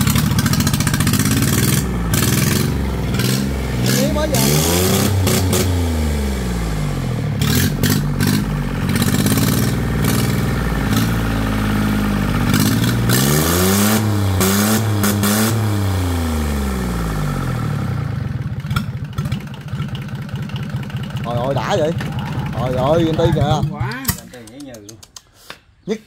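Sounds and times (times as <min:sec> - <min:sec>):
clatter: 0:00.0 - 0:04.3, 0:07.4 - 0:15.3, 0:18.4 - 0:24.2
engine revving: 0:00.0 - 0:24.3.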